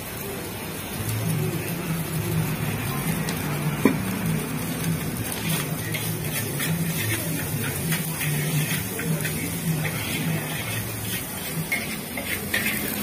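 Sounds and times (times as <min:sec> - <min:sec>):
gas burner flame rushing: 0:00.0 - 0:13.0
rice sizzling in wok: 0:00.0 - 0:13.0
spatula scraping and tapping wok: 0:03.2 - 0:13.0.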